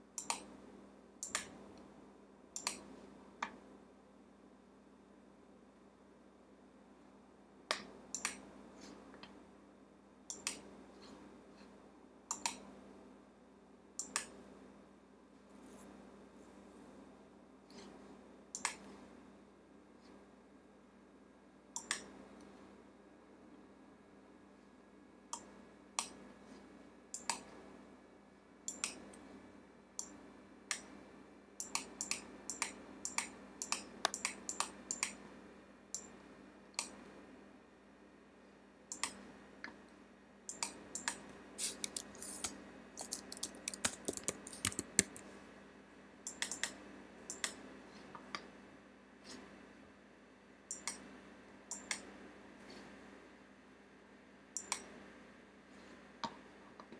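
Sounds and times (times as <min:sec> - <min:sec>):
faint steady hum: 0:00.0 - 0:56.9
mouse clicks: 0:00.2 - 0:00.5, 0:01.2 - 0:01.6, 0:02.6 - 0:03.6, 0:07.7 - 0:08.4, 0:10.3 - 0:10.7, 0:12.3 - 0:12.6, 0:14.0 - 0:14.4, 0:18.6 - 0:18.9, 0:21.8 - 0:22.1, 0:27.1 - 0:27.5, 0:28.7 - 0:29.1, 0:31.6 - 0:35.2, 0:38.9 - 0:39.2, 0:40.5 - 0:45.2, 0:46.3 - 0:47.6, 0:50.7 - 0:51.0, 0:51.7 - 0:52.1, 0:54.6 - 0:54.9
keyboard key presses: 0:40.5 - 0:45.2.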